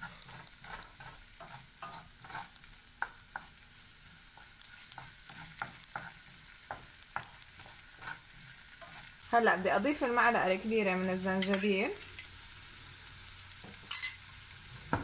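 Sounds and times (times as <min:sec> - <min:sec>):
wooden spoon scraping and tapping: 0:00.0 - 0:03.6, 0:04.2 - 0:09.2, 0:11.4 - 0:12.3
onions sizzling in oil: 0:00.0 - 0:15.0.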